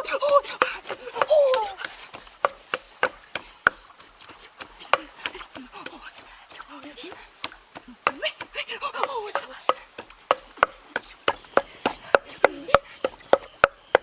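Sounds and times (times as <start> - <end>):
blade chopping on wooden block: 9.0 - 14.0.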